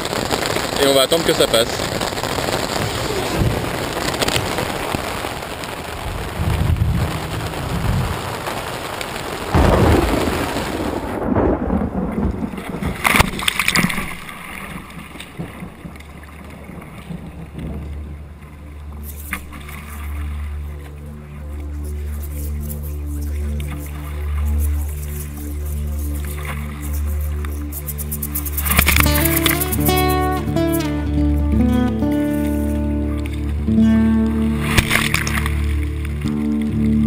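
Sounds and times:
thunder rolling: 0.0 - 18.6
heavy rain on tent: 0.0 - 37.0
water splashes: 0.0 - 37.0
kayak slapping through water: 2.0 - 30.5, 32.3 - 37.0.

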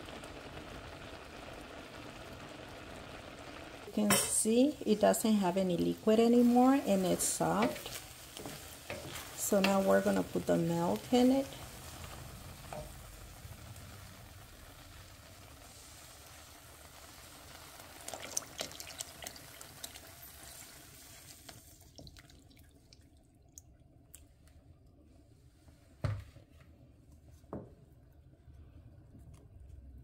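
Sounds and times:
liquid pouring into a pan: 11.5 - 23.5.

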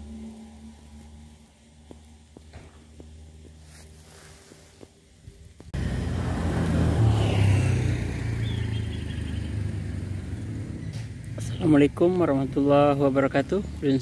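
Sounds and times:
vehicle engine rumbling: 0.0 - 14.0.

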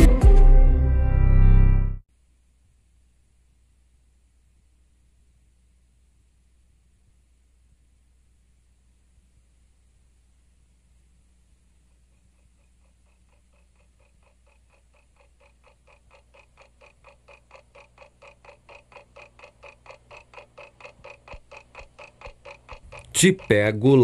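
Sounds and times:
clock ticking fast: 11.8 - 24.0.

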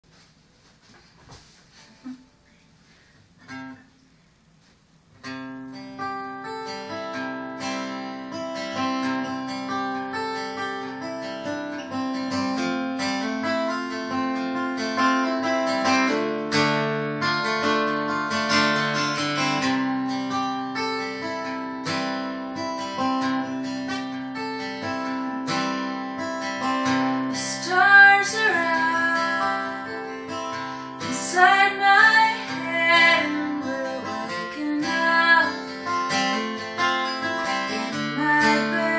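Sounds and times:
acoustic guitar chords: 1.3 - 38.9
woman singing: 27.3 - 36.4, 37.2 - 38.9.

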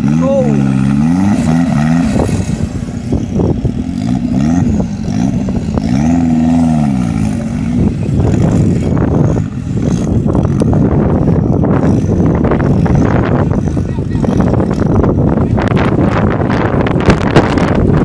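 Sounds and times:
buggy engine revving: 0.0 - 18.0.

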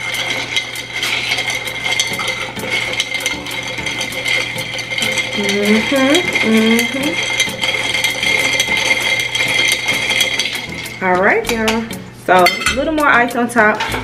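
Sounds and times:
ice clinking against a glass: 0.0 - 11.0.

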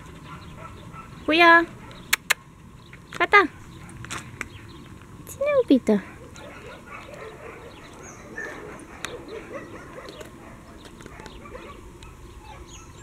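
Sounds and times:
dog whimpering and yipping: 6.0 - 13.0.

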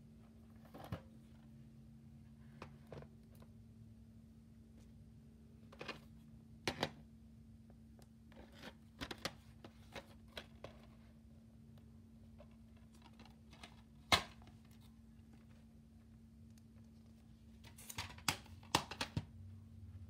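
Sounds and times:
plastic case clicks and rustles: 17.7 - 19.3.

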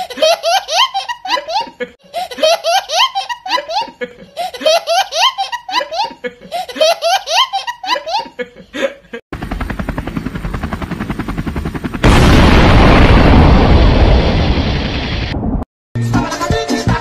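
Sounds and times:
toddler laughing: 0.0 - 9.2
helicopter rotor chopping: 9.4 - 12.6
loud explosion blast: 12.0 - 15.7.

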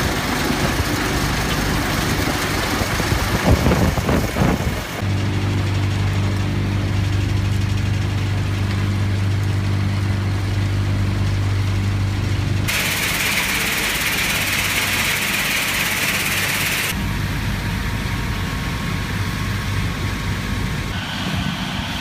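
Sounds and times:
crushing machinery humming: 0.0 - 22.0
stone rushing on conveyor belt: 12.7 - 17.0.

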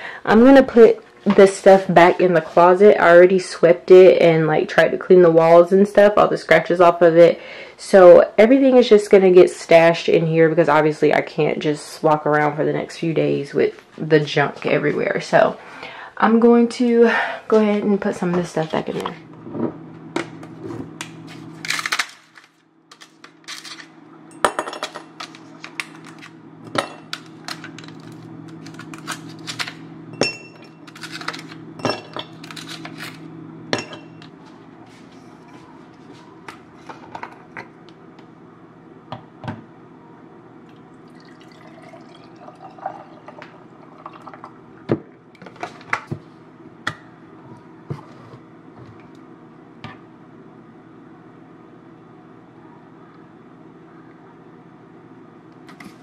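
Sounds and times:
coffee pouring over ice: 40.7 - 44.6.

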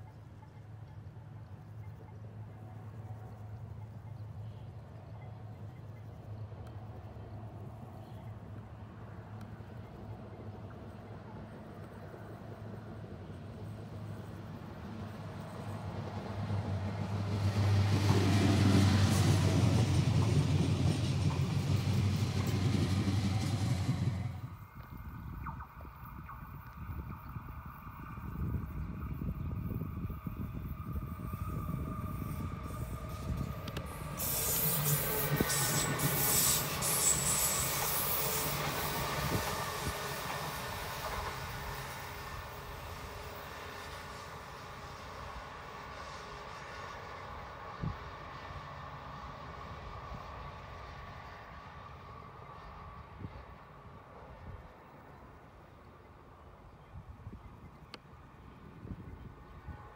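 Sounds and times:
train low hum: 0.0 - 59.9
train wheels rumbling on rail: 6.4 - 25.6, 27.2 - 54.6.

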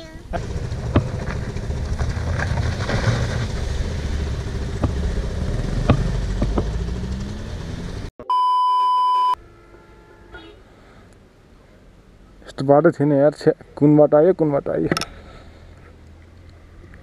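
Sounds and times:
motorcycle engine rumble: 0.0 - 8.1
wind: 0.0 - 17.0
sharp knocks: 4.6 - 7.1
loud electronic beep: 8.2 - 9.4.

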